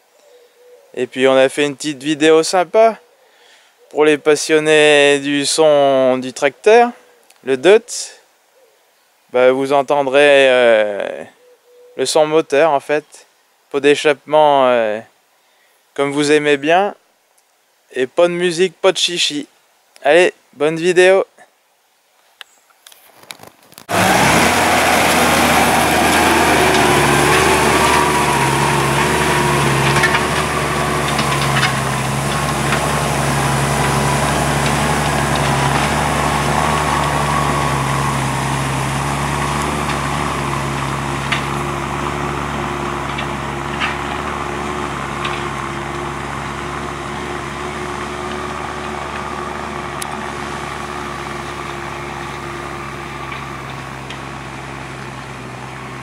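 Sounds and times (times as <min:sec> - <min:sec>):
tractor diesel engine: 0:23.9 - 0:56.0.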